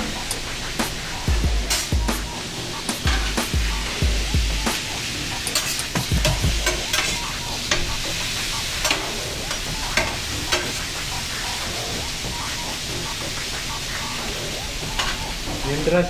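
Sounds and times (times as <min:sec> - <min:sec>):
meat sizzling on a griddle: 0:00.0 - 0:16.0
metal spatula scraping steel: 0:04.7 - 0:11.2.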